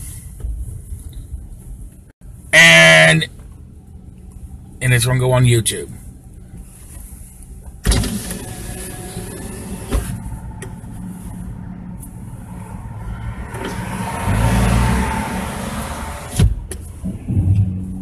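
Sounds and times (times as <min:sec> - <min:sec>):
low engine hum: 0:03.3 - 0:18.0
car passing: 0:08.7 - 0:18.0.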